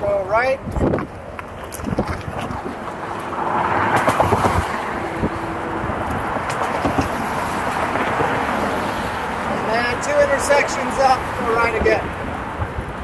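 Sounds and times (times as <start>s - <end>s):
road traffic rushing: 1.1s - 13.0s.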